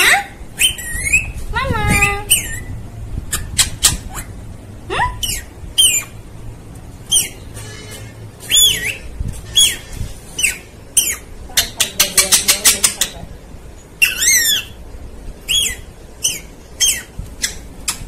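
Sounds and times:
parakeet squawking and whistling: 0:00.0 - 0:06.2, 0:07.1 - 0:11.4, 0:14.0 - 0:14.8, 0:15.4 - 0:18.0.

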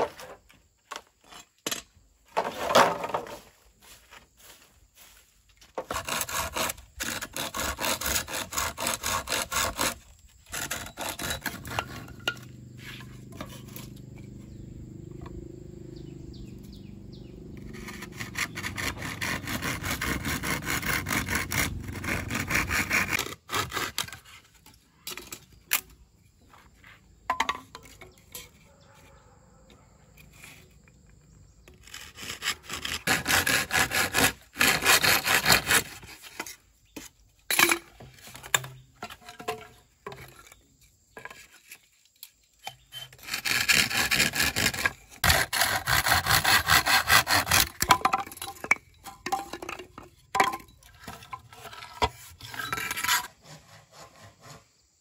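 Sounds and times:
wood being sawn: 0:04.4 - 0:14.6, 0:17.5 - 0:24.7, 0:30.1 - 0:36.6, 0:42.6 - 0:48.2, 0:51.0 - 0:54.8.

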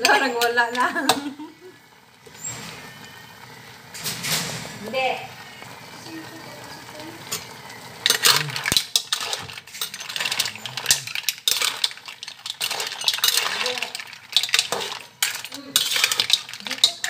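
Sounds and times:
metal utensil scraping a pan: 0:07.2 - 0:17.0.

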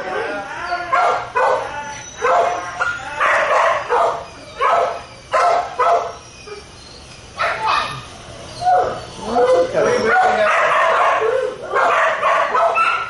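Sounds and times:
dog barking: 0:00.9 - 0:06.2, 0:07.4 - 0:08.0, 0:10.0 - 0:13.0.

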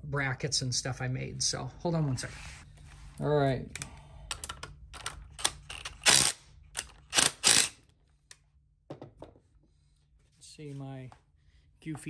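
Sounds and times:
cordless driver removing bolts: 0:04.5 - 0:07.8.

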